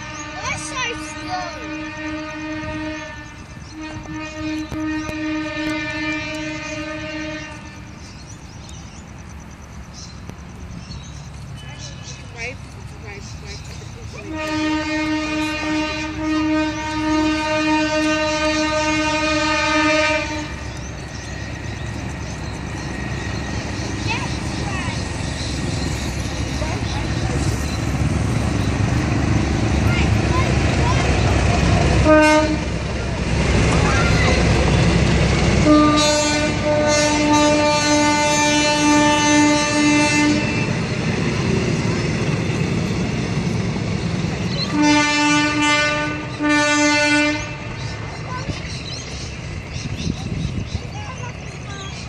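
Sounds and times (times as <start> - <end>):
locomotive horn blast: 0.0 - 8.0, 14.2 - 22.9, 28.4 - 41.0, 44.6 - 48.0
train rumbling: 0.0 - 52.0.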